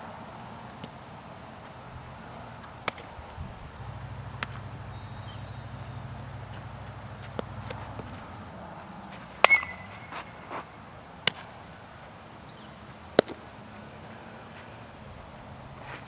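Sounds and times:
ball striking bat or glove: 2.6s - 3.1s, 3.8s - 8.4s, 9.1s - 11.5s, 13.1s - 13.5s.

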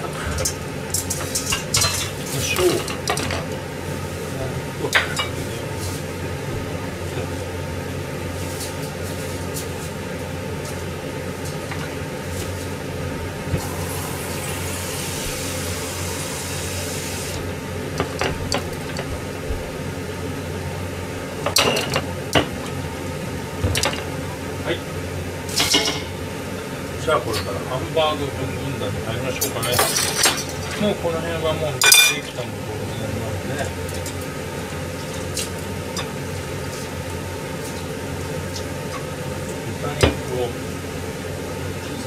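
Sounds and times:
pots and utensils clinking: 0.0s - 3.6s, 4.8s - 5.5s, 21.4s - 22.8s, 25.5s - 26.2s, 29.4s - 31.0s, 31.8s - 32.4s
low kitchen hum: 0.0s - 42.0s
hiss: 13.6s - 17.4s.

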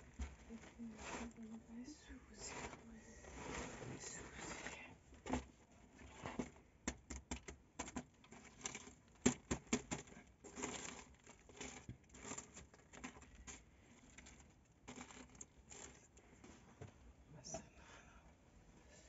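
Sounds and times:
flatbread crackling and rustling: 0.0s - 6.6s, 8.3s - 16.8s.

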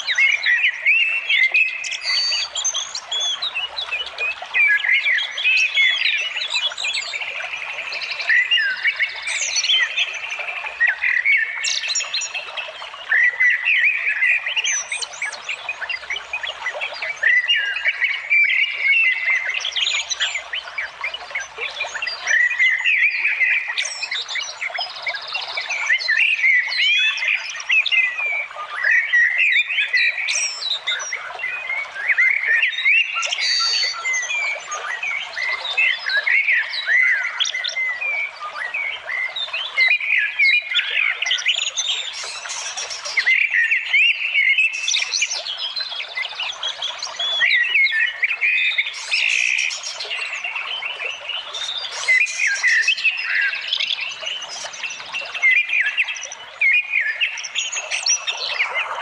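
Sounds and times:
birds chirping and calling: 25.5s - 59.0s.

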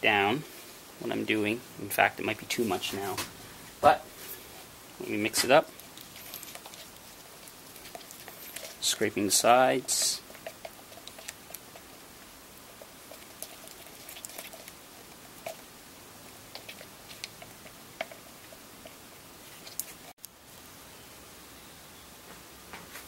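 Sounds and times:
steady hiss: 0.0s - 23.0s
stick scraping plastic tub: 7.8s - 11.9s.

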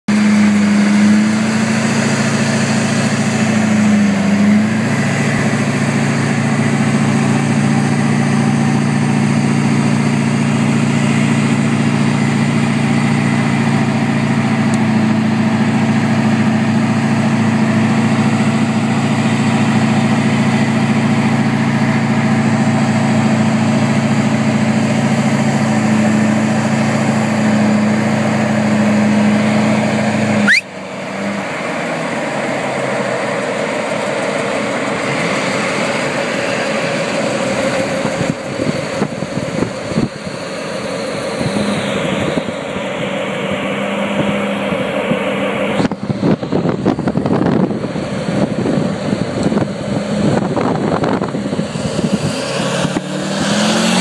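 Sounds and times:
engine and tire drone: 0.0s - 54.0s
wind rush: 46.0s - 53.6s.

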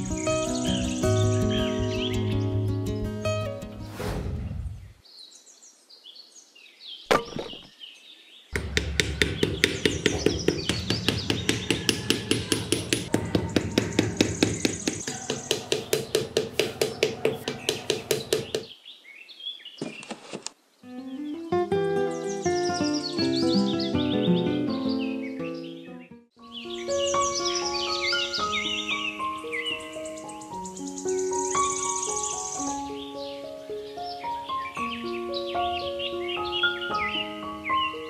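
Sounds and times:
birds chirping: 0.0s - 38.0s
sharp knock: 7.1s - 7.7s, 8.6s - 18.7s
rapid hammer tapping: 8.6s - 18.7s.

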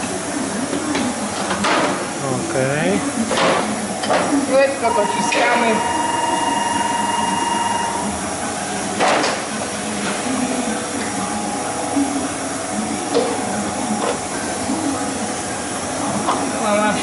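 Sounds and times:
printing press hum: 0.0s - 17.0s.

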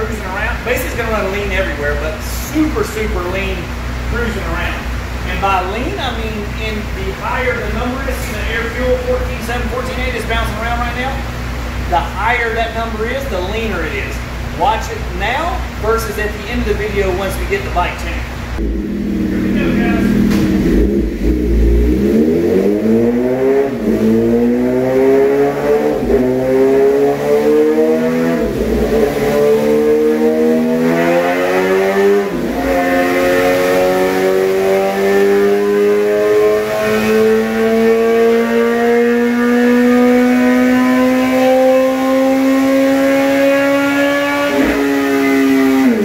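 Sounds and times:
motorcycle engine revving on dyno: 18.4s - 46.0s.

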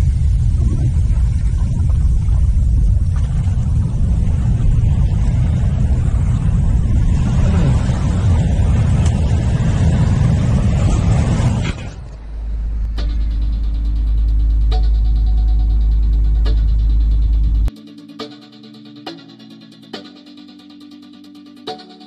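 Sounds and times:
surf washing on shore: 0.0s - 12.2s
wind buffeting microphone: 0.0s - 13.4s
low steady hum: 0.0s - 17.7s.

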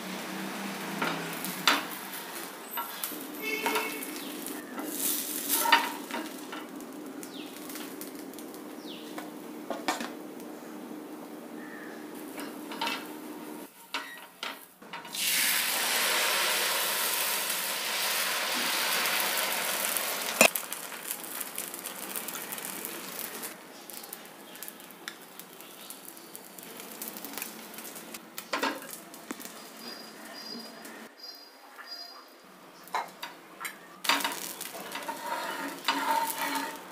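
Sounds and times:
batter sizzling on hot pan: 0.0s - 9.3s, 14.9s - 30.5s, 34.0s - 36.9s.

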